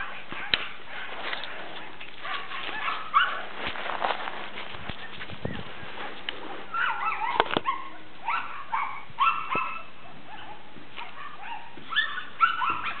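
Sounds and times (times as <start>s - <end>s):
puppy yipping and whimpering: 6.7s - 13.0s.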